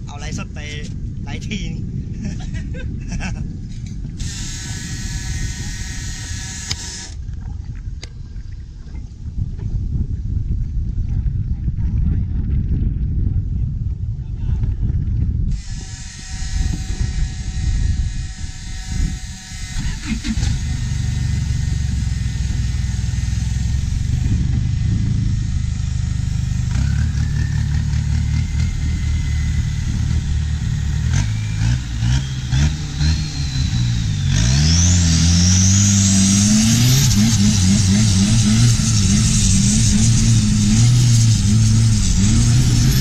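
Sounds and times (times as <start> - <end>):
high whine: 0.0 - 7.4, 15.5 - 43.0
boat diesel engine running: 4.0 - 7.5, 15.6 - 43.0.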